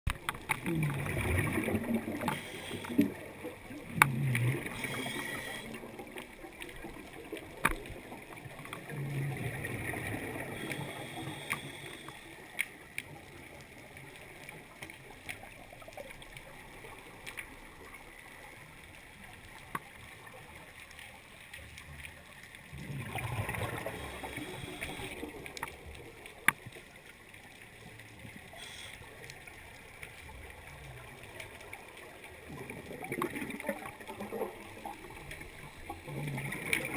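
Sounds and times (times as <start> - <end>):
underwater exhaust bubbles gurgling: 0.1 - 36.9
steady hiss: 2.2 - 3.4, 4.6 - 5.9, 10.4 - 12.8, 23.7 - 25.6, 28.4 - 29.7.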